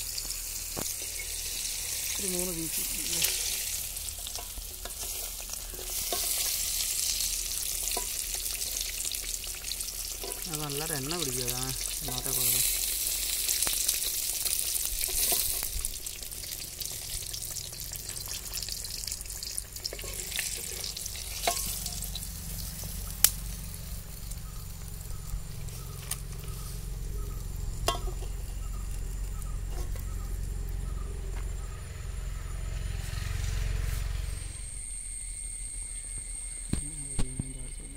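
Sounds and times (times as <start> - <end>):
chicken deep-frying in oil: 0.0 - 31.3
spoon clicking against wok: 27.8 - 28.3.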